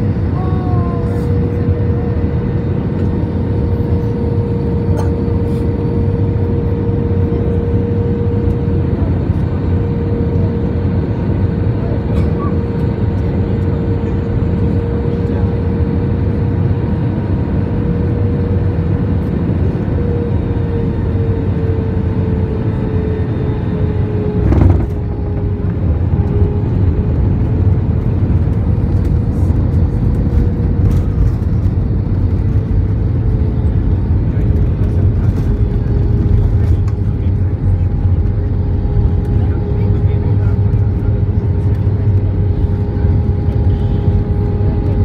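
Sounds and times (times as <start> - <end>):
airplane cabin engine rumble: 0.0 - 45.0
steady whine: 19.2 - 45.0.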